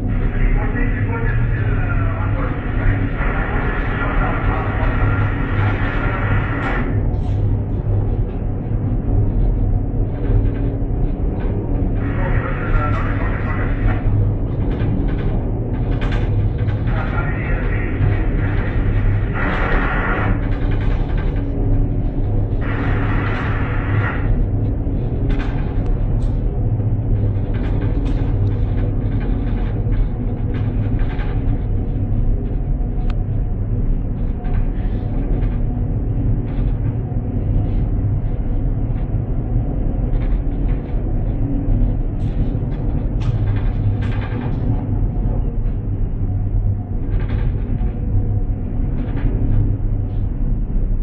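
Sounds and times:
ship machinery rumble: 0.0s - 51.0s.

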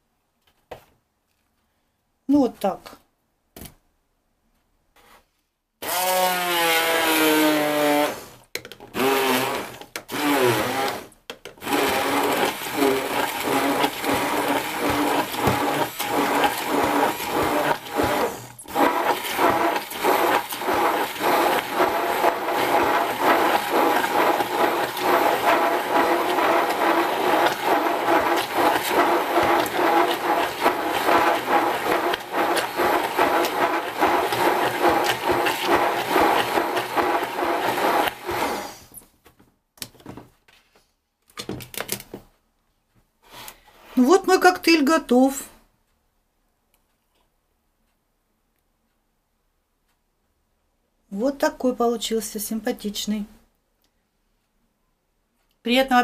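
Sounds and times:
immersion blender whizzing: 5.8s - 39.0s.

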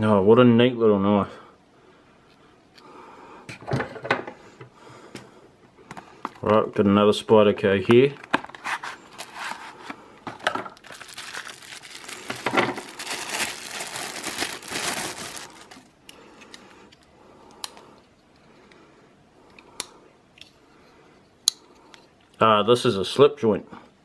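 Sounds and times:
plastic wrapping crinkling: 8.5s - 16.0s.

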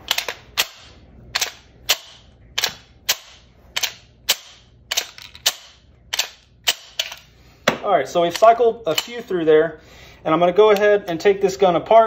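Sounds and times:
pistol slide racking clacks: 0.0s - 7.3s.

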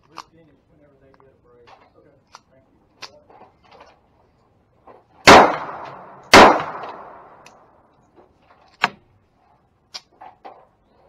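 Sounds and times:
gunshots with ringing tail: 5.2s - 7.5s.

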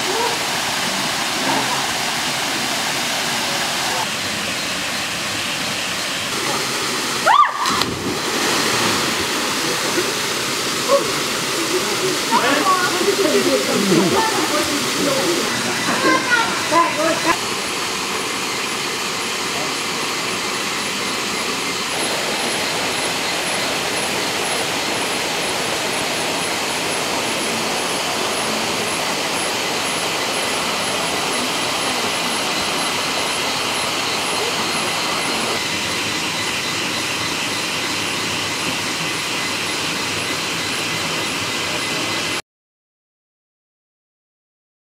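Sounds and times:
steady rushing noise: 0.0s - 42.4s
high pulsing insect trill: 7.9s - 42.3s.

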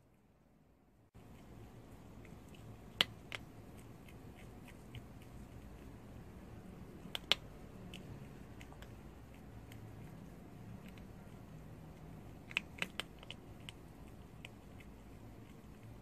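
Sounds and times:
animal gnawing crunchy treat: 1.2s - 16.0s.

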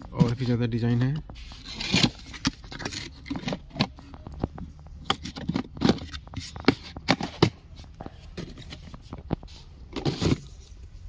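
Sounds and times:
glass tumbler and cardboard handling: 0.0s - 10.8s.

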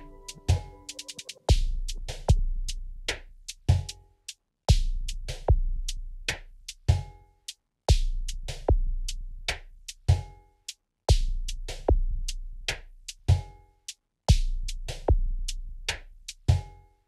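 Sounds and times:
electronic drum beat: 0.0s - 2.7s.

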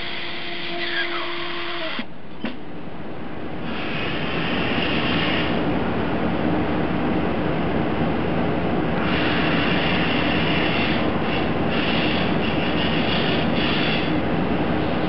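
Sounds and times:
machine steady hum: 0.0s - 15.0s
higher hiss of hot air: 3.6s - 5.6s, 9.0s - 14.2s.

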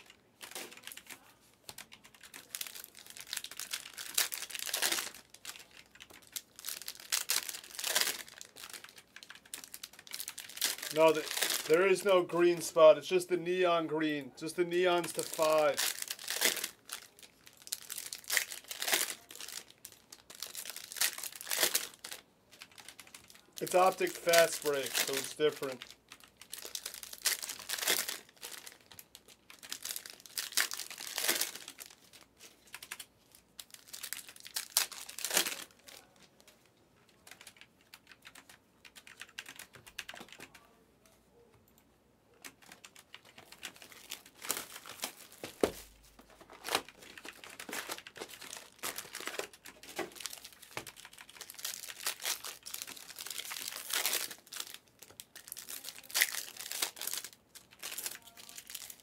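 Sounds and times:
foil wrappers crinkling and tearing: 0.0s - 13.2s, 14.4s - 36.6s, 42.6s - 59.0s.

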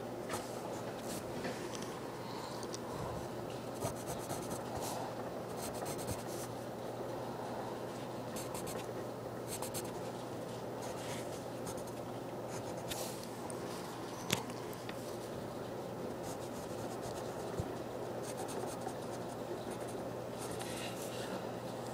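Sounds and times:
steady low hum: 0.0s - 21.9s
pen scratching on paper: 3.8s - 4.8s, 5.5s - 6.4s, 9.5s - 10.0s.

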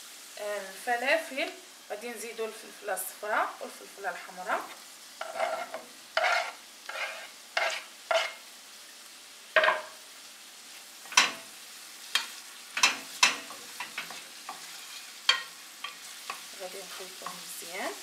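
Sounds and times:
faint sizzle: 0.0s - 18.0s
wooden spoon scraping and knocking: 4.5s - 8.4s, 9.6s - 9.9s.

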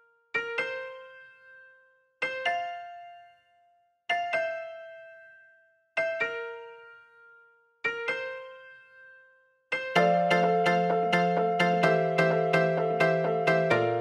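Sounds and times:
gentle keyboard chords: 0.4s - 3.5s, 6.0s - 14.0s.

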